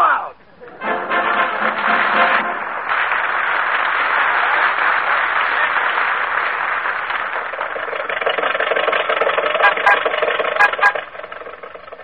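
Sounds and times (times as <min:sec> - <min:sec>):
audience applauding: 0:00.8 - 0:12.0
old car engine sputtering: 0:05.3 - 0:12.0.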